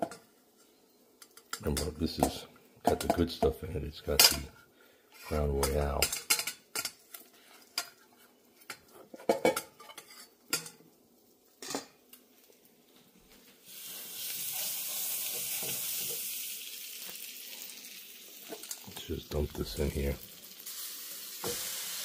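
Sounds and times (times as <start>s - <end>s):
toast sizzling in a pan: 5.2s - 22.0s.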